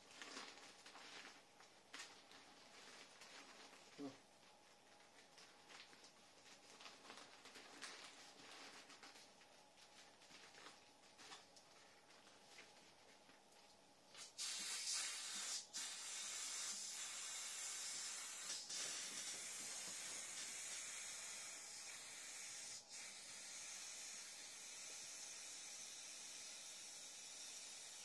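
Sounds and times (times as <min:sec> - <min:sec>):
air hissing through toy valve: 0:14.2 - 0:28.0.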